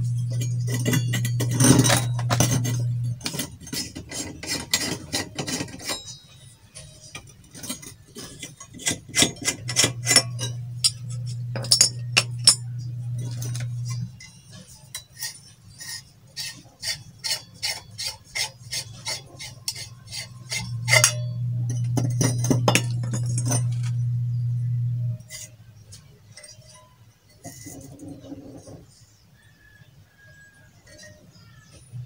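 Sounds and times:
steady low hum: 0:00.0 - 0:06.0, 0:06.6 - 0:15.9, 0:18.9 - 0:29.0
metal parts clinking: 0:00.1 - 0:16.6, 0:19.0 - 0:24.1, 0:25.0 - 0:28.8.

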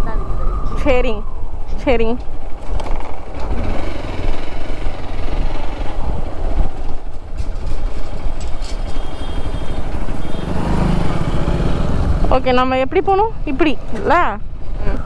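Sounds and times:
motorcycle engine running: 0:02.2 - 0:15.0.

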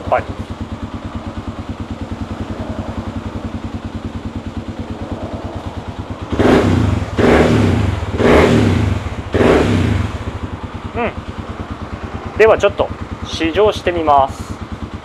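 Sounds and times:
motorcycle engine idling and revving: 0:00.0 - 0:15.0.

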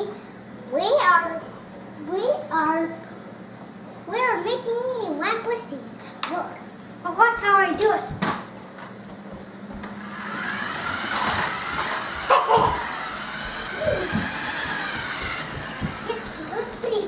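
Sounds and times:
toy car electric motor whine: 0:09.8 - 0:17.0
sharp knocks: 0:12.3 - 0:16.4.

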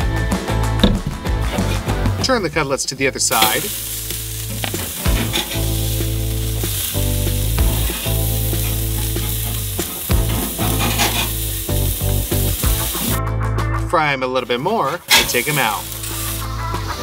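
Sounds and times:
background music: 0:00.0 - 0:17.0
burgers sizzling on grill: 0:01.4 - 0:13.2, 0:14.3 - 0:17.0
metal spatula scraping: 0:03.3 - 0:05.9, 0:07.6 - 0:11.6.

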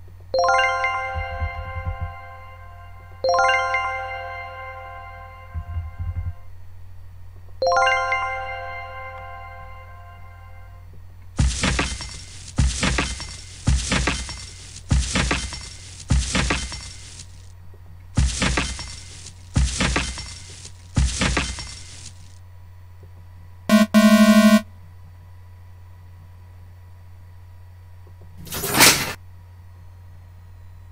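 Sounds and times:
buzzing error tone: 0:23.7 - 0:24.7.

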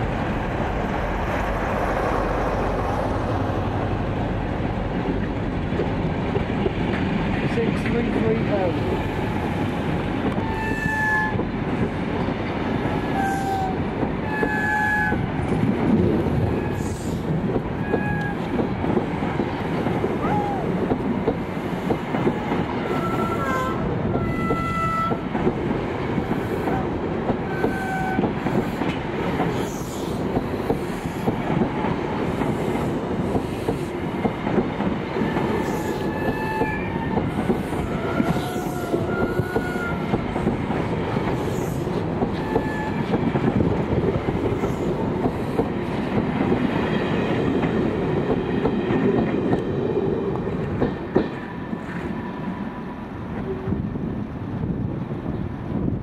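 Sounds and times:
train wheels clattering over rail joints: 0:25.0 - 0:52.2.

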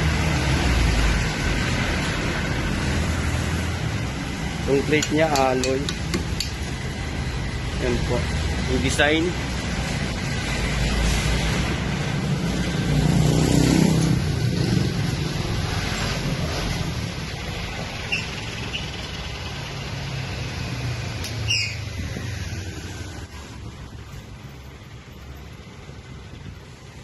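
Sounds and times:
street traffic rumble: 0:00.0 - 0:27.0.

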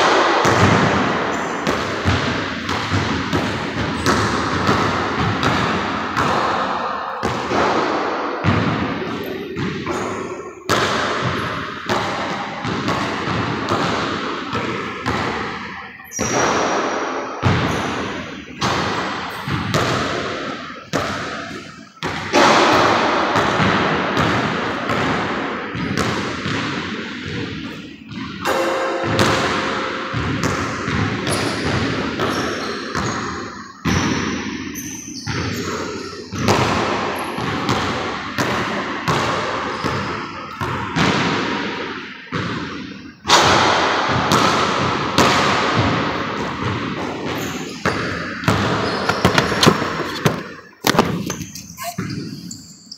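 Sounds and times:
basketball bouncing on wood floor: 0:00.0 - 0:42.6, 0:43.3 - 0:52.8.

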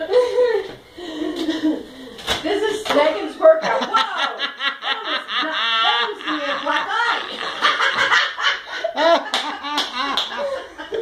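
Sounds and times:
people laughing hard: 0:03.6 - 0:11.0.

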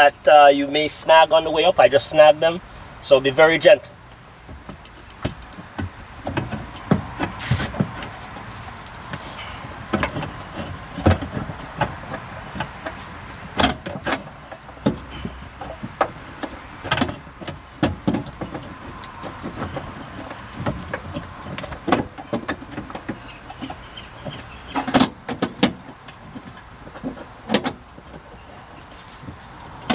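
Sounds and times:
hard parts knocking against dashboard: 0:04.4 - 0:28.3.

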